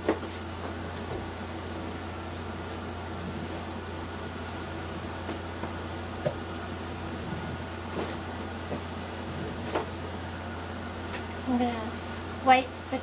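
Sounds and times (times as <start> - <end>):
electric fan humming: 0.0 - 13.0.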